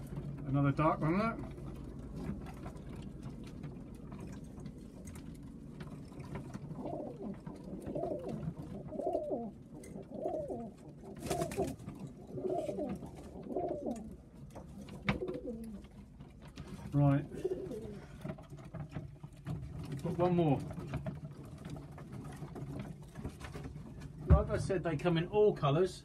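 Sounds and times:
pigeons cooing: 5.8s - 18.5s.

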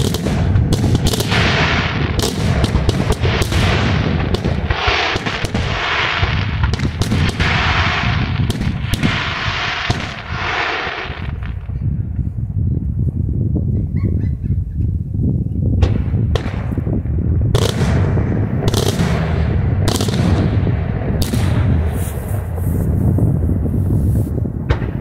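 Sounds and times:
fireworks hissing crackle: 4.4s - 11.6s, 21.8s - 24.4s.

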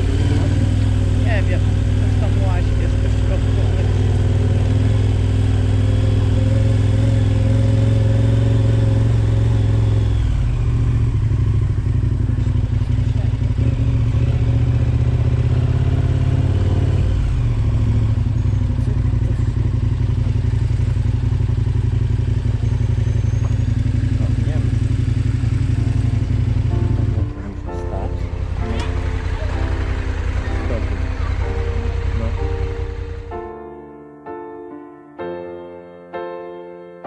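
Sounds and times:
vehicle engine running: 0.0s - 33.6s.

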